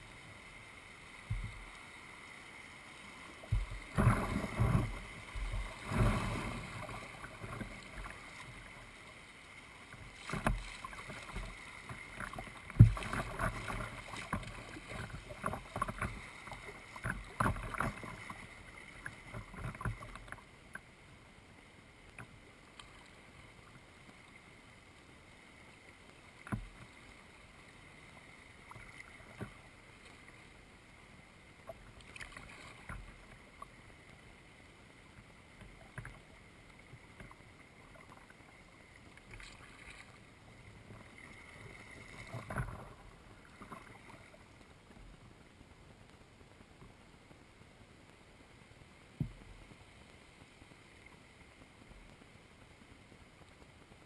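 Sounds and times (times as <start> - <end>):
paddle splashes and drips: 0.0 - 21.0, 25.6 - 45.2.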